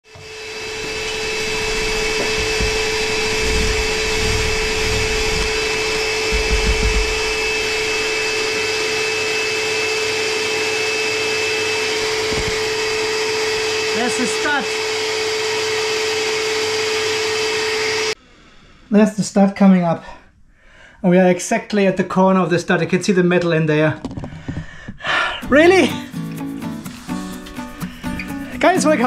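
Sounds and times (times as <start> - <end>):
drill motor hum: 0.0 - 18.2.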